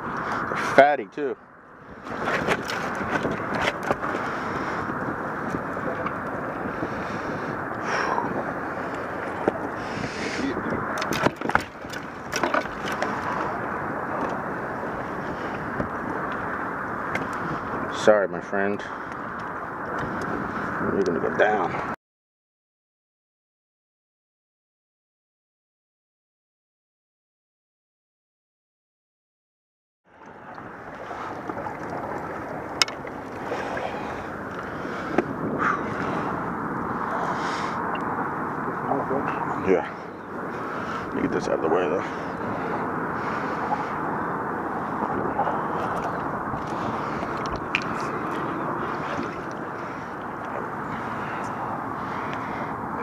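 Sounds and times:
water around boat: 0.0s - 22.0s, 30.0s - 53.0s
wind: 0.0s - 22.0s, 30.0s - 53.0s
fishing gear clicks and knocks: 2.2s - 4.2s, 10.9s - 13.4s.

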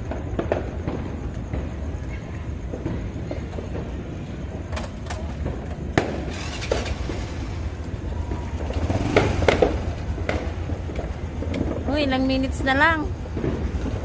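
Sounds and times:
sharp cracks: 4.7s - 14.0s
motorcycle engine idling: 6.3s - 11.7s.

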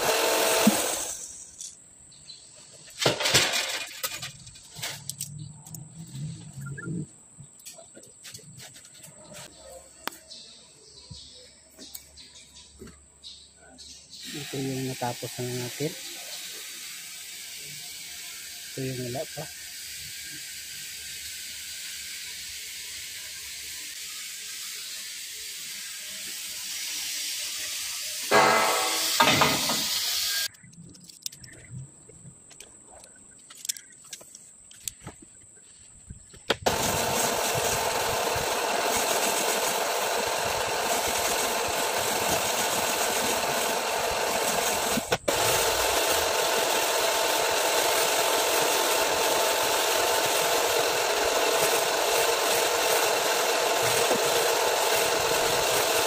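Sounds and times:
honing stones grinding in bore: 0.0s - 1.4s, 36.7s - 56.0s
small clicks: 30.4s - 31.7s, 32.5s - 35.1s.

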